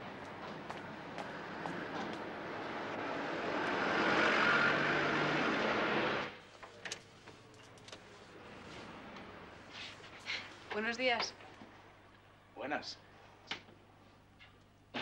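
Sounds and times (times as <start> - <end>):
vehicle passing: 0.1 - 6.4.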